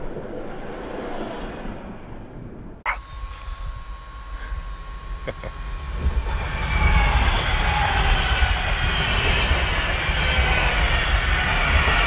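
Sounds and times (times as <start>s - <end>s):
faint whine: 0.0s - 12.0s
train wheels rumbling on rail: 4.7s - 12.0s.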